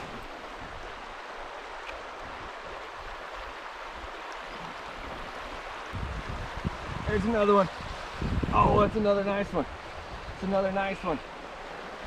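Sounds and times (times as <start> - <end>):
river running over gravel: 0.0 - 12.0.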